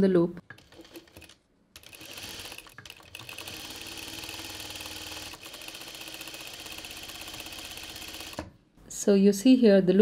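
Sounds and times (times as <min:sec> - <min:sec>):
sewing machine running fast: 0:00.6 - 0:08.4.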